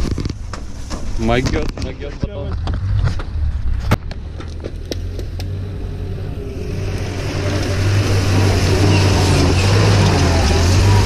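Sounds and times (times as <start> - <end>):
van engine driving: 0.0 - 11.0.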